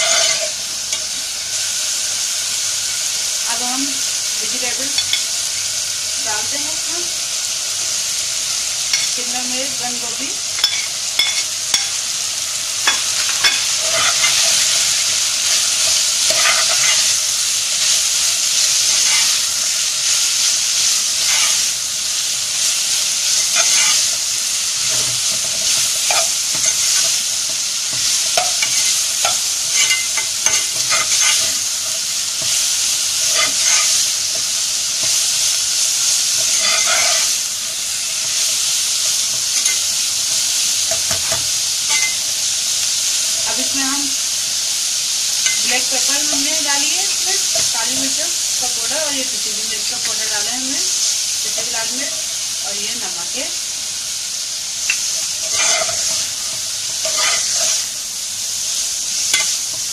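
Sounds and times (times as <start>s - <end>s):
spatula scraping a pan: 0.0s - 1.2s, 12.8s - 21.8s, 22.5s - 42.2s, 54.8s - 57.9s, 59.2s - 59.9s
vegetables sizzling in oil: 0.0s - 59.9s.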